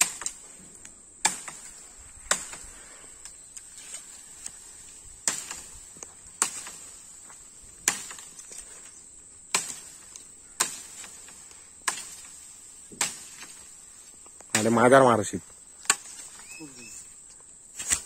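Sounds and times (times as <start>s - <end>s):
blade chopping bamboo: 0.0s - 0.4s, 1.2s - 1.7s, 2.3s - 2.6s, 5.2s - 5.7s, 6.4s - 6.8s, 7.8s - 8.4s, 9.5s - 13.7s, 14.5s - 14.9s, 15.8s - 16.5s, 17.8s - 18.0s
high-pitched insect drone: 16.2s - 17.4s.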